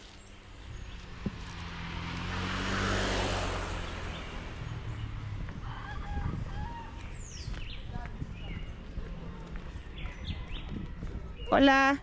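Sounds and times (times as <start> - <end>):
vehicle passing on road: 0.0 - 11.5.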